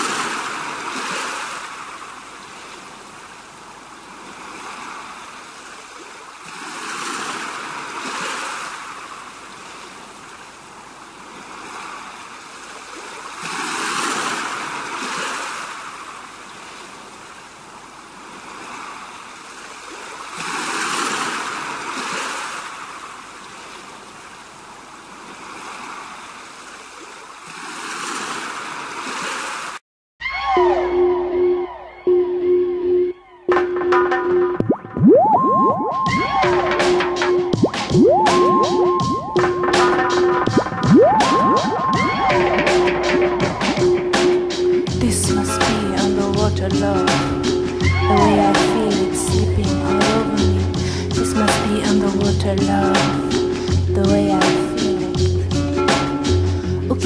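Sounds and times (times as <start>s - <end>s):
surf breaking on rocks: 11.2s - 16.3s, 18.2s - 23.4s.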